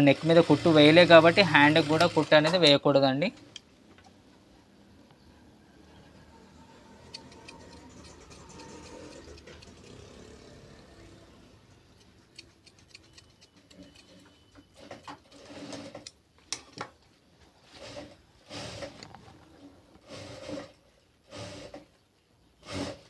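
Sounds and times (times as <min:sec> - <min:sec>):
sewing machine running: 0:00.0 - 0:02.6, 0:06.5 - 0:11.8, 0:12.8 - 0:16.1.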